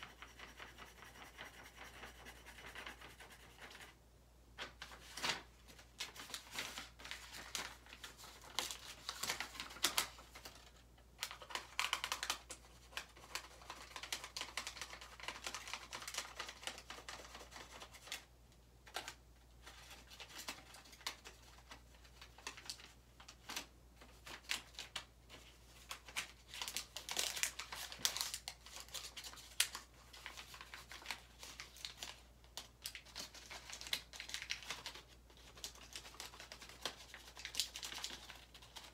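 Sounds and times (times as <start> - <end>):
paper crumpling: 4.6 - 18.3, 18.9 - 38.9.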